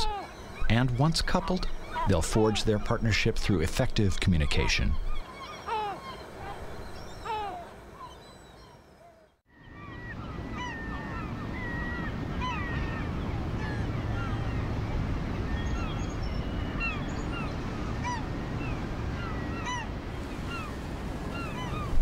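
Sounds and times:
gulls calling: 0:00.0 - 0:22.0
surf rushing: 0:10.4 - 0:22.0.

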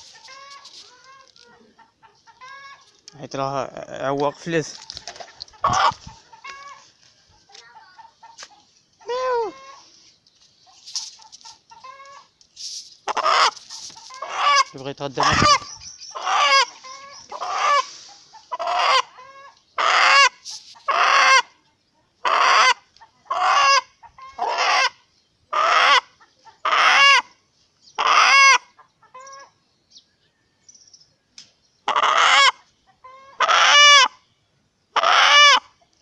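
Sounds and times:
rooster squawking: 0:05.6 - 0:06.9, 0:09.0 - 0:09.9, 0:13.0 - 0:21.5, 0:22.2 - 0:27.3, 0:28.0 - 0:29.5, 0:31.9 - 0:34.2, 0:35.0 - 0:35.7.

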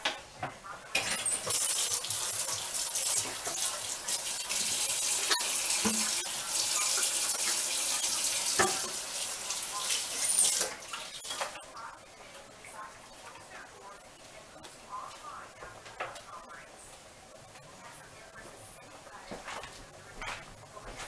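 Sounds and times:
faucet running into sink: 0:01.0 - 0:11.6.

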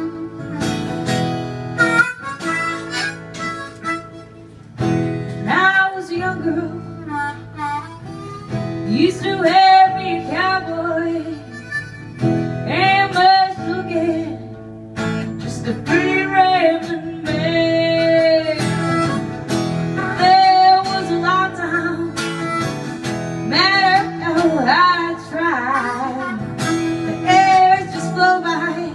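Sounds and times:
woman singing: 0:00.0 - 0:00.7, 0:05.4 - 0:07.6, 0:08.8 - 0:11.7, 0:12.6 - 0:14.6, 0:15.2 - 0:19.3, 0:19.9 - 0:22.6, 0:23.4 - 0:28.9
harmonica melody: 0:00.0 - 0:14.5, 0:16.7 - 0:28.9
strummed acoustic guitar: 0:00.0 - 0:28.9.

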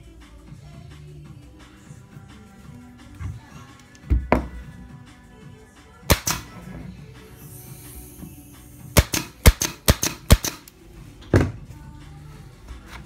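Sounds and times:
pin nailer shots: 0:06.1 - 0:06.6, 0:08.9 - 0:10.7.

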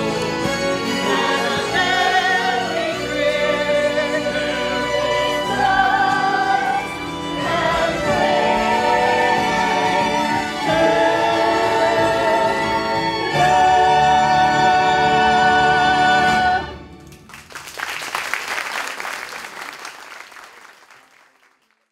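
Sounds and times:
choir singing with orchestra: 0:00.0 - 0:17.0
audience applause: 0:17.1 - 0:21.9.

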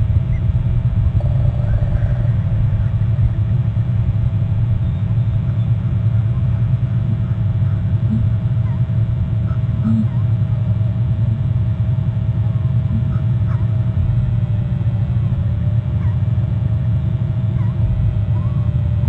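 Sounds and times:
faint hum: 0:00.0 - 0:19.0
low rumble: 0:00.0 - 0:19.0
faint bird chirps: 0:04.6 - 0:10.3.

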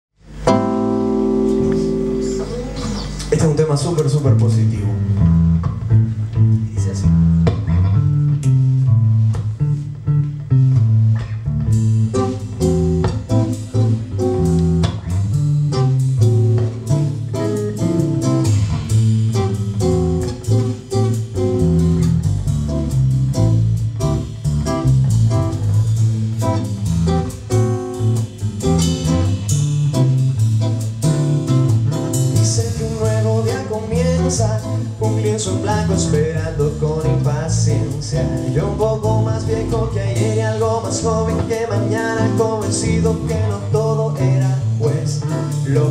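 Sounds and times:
bass guitar: 0:00.1 - 0:45.9
acoustic guitars: 0:00.2 - 0:45.9
drums with cymbals: 0:11.7 - 0:45.9
man singing: 0:32.4 - 0:45.9.

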